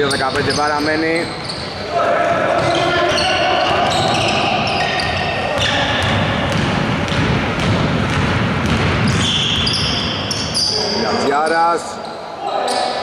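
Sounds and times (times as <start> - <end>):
sneaker squeaks: 0.0 - 11.2, 12.0 - 13.0
basketball bouncing on wooden floor: 5.0 - 9.9.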